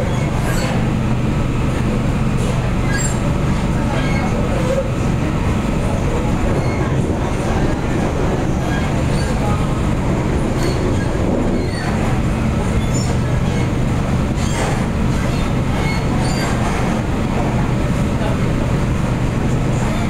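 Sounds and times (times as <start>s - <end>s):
train wheels rumbling on rail: 0.0s - 20.0s
high-pitched wheel squeals: 6.6s - 6.9s, 10.6s - 12.0s.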